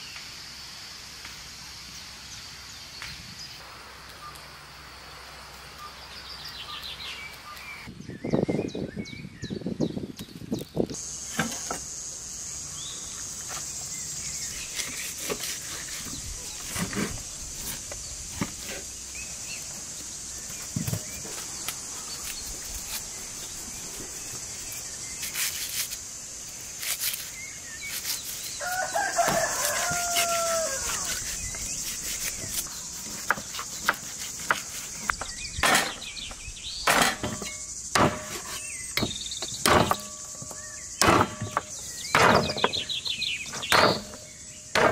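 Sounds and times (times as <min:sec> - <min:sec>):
high-pitched insect chorus: 0:11.0 - 0:44.9
rooster crowing: 0:28.6 - 0:31.3.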